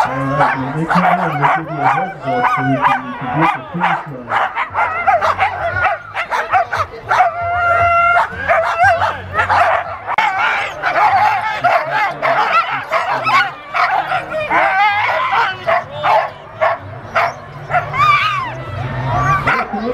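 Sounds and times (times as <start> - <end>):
sled dogs yipping and howling: 0.0 - 19.9.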